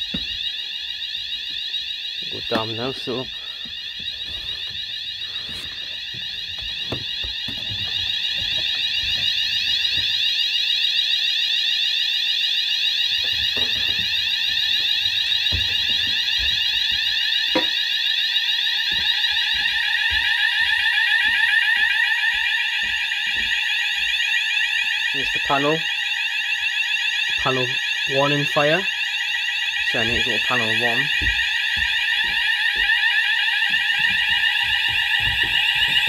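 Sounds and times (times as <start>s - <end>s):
fire alarm warbling tone: 0.0s - 36.0s.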